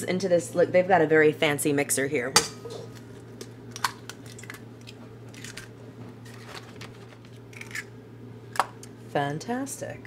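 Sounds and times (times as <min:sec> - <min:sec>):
steady low hum: 0:00.0 - 0:10.0
eggshells cracking: 0:03.7 - 0:05.7, 0:06.3 - 0:07.9.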